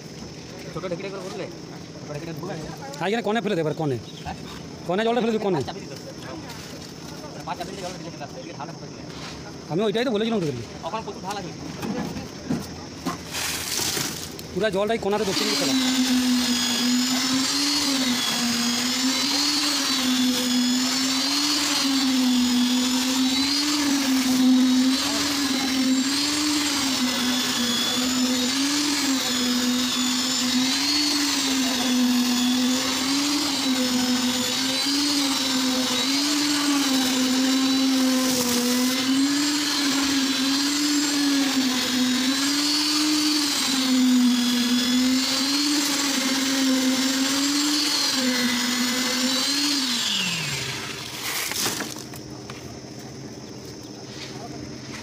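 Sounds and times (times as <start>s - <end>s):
concrete vibrator motor humming: 14.1s - 53.7s.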